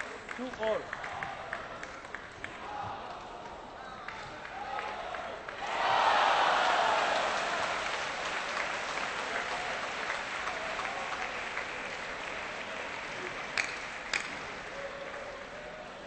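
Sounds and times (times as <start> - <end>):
spectator applause: 4.0 - 15.9.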